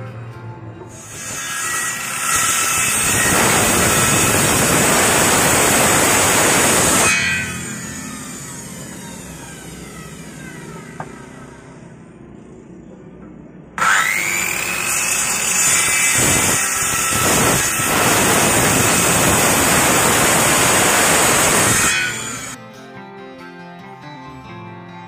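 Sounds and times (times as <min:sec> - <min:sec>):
saw cutting wooden board: 0:00.9 - 0:12.0, 0:13.8 - 0:22.6
circular saw whining: 0:00.9 - 0:12.8, 0:13.8 - 0:22.6.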